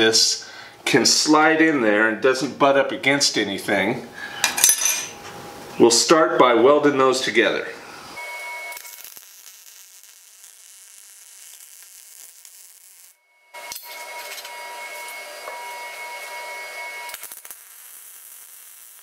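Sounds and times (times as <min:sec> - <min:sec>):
welder arc crackling and hissing: 0:05.3 - 0:19.0
faint steady whine: 0:13.0 - 0:18.5.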